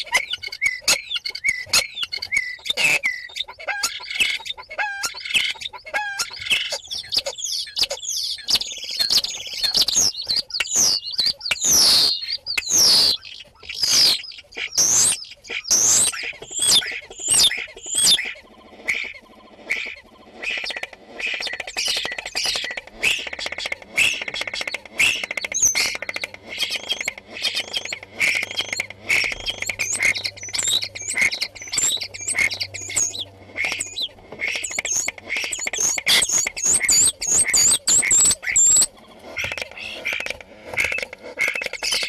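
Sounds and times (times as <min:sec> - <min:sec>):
starling singing: 0:00.0 - 0:42.0.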